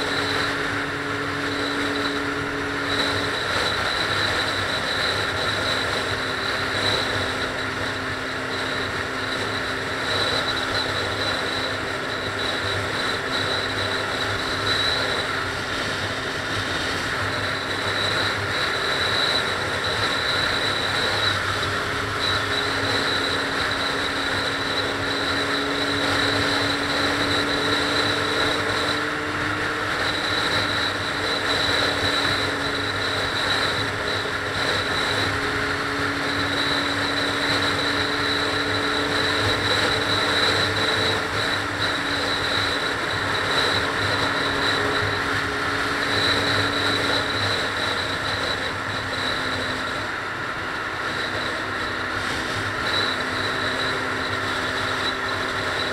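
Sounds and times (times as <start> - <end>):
car tyre and engine noise: 0.0 - 55.9
faint high whine: 0.0 - 55.9.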